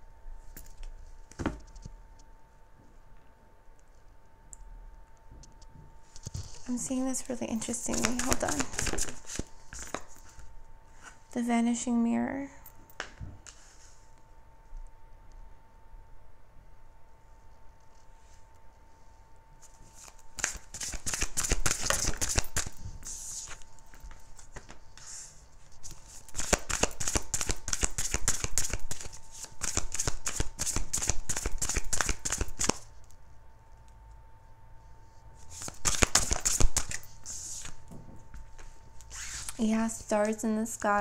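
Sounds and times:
cards being shuffled: 7.2s - 11.2s, 19.6s - 32.9s, 35.4s - 37.8s.

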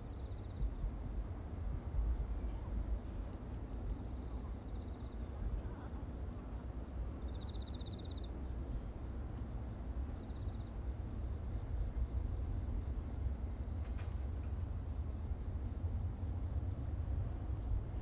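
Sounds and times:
jet airliner rumble: 11.2s - 18.0s.

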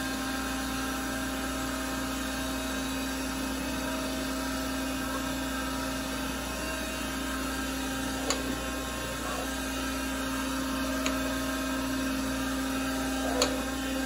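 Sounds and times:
surface grinder humming: 1.9s - 14.0s.

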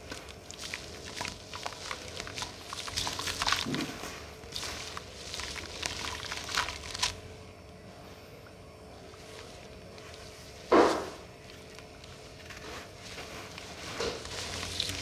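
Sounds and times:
crumbs splashing into water: 0.0s - 7.2s
dust chunks crumbling by hand: 0.0s - 7.2s, 9.1s - 15.0s.

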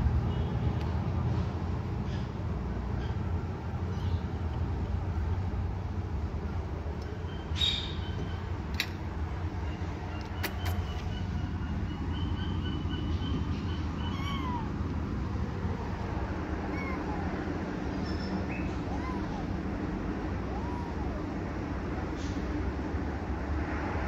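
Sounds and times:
kitten mewing faintly: 16.4s - 17.9s, 18.6s - 22.4s.

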